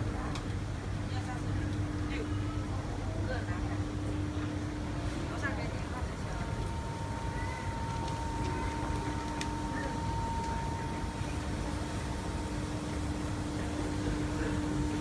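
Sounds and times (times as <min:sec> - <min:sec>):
faint constant hum: 0:00.0 - 0:15.0
low rumble and hiss: 0:00.0 - 0:15.0.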